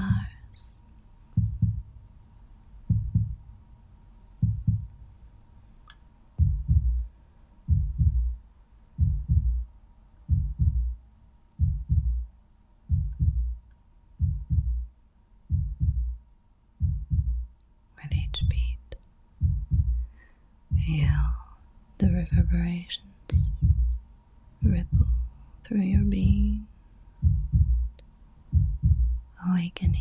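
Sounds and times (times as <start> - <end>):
heartbeat thumps: 0.0 - 0.4, 1.3 - 2.0, 2.9 - 3.5, 4.4 - 5.0, 6.4 - 7.1, 7.7 - 8.4, 9.0 - 9.7, 10.3 - 11.0, 11.6 - 12.3, 12.9 - 13.6, 14.2 - 14.9, 15.5 - 16.2, 16.8 - 17.5, 18.1 - 18.8, 19.4 - 20.1, 20.7 - 21.4, 22.0 - 24.0, 24.6 - 25.3, 25.9 - 26.6, 27.2 - 30.0.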